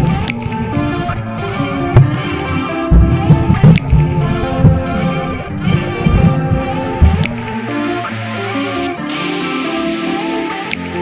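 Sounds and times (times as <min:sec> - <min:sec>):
background music with held notes: 0:00.0 - 0:11.0
low percussive thumps: 0:01.8 - 0:05.0, 0:05.6 - 0:07.6.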